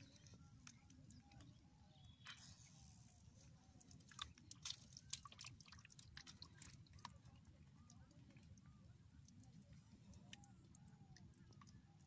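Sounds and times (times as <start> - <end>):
sharp wet clicks: 3.8 - 12.0
wet mud squelching: 3.9 - 7.4.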